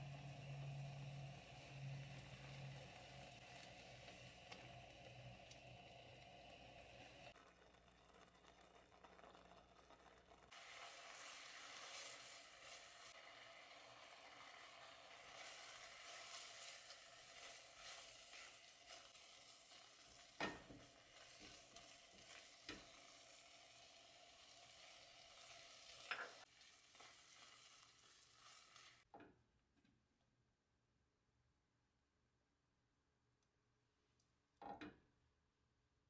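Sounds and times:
faint sizzling of marmalade: 0:00.0 - 0:29.2
spatula stirring and scraping: 0:06.1 - 0:23.7, 0:24.6 - 0:29.1.

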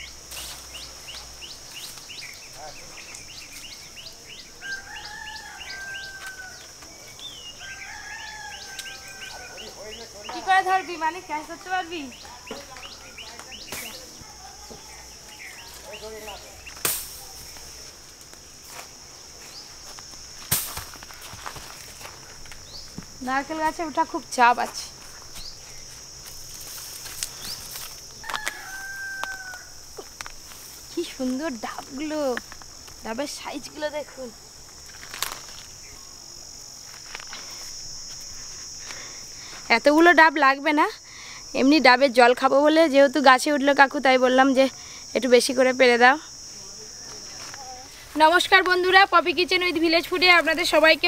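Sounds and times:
bird chirping: 0:00.0 - 0:11.0, 0:11.7 - 0:17.7, 0:22.6 - 0:23.0
crickets droning: 0:00.0 - 0:51.0
high insect buzz: 0:00.0 - 0:51.0
rooster crowing: 0:04.4 - 0:09.9, 0:28.2 - 0:29.9.

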